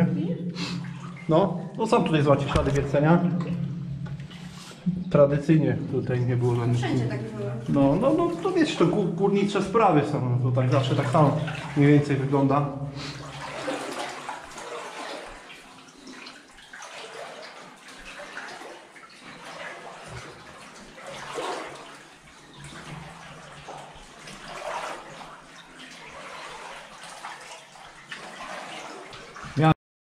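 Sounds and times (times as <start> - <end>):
feet wading through water: 6.1 - 10.0, 10.6 - 29.7.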